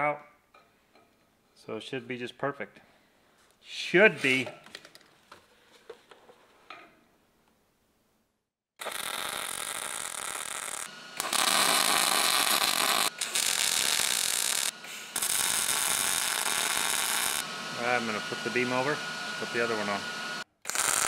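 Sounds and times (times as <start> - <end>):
welding arc buzzing: 8.8 - 21.0.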